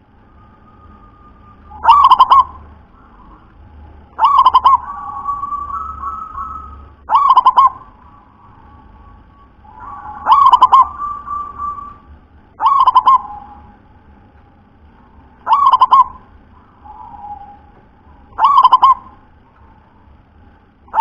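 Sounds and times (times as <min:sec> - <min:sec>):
dove cooing: 0:01.6 - 0:13.8, 0:15.2 - 0:19.2.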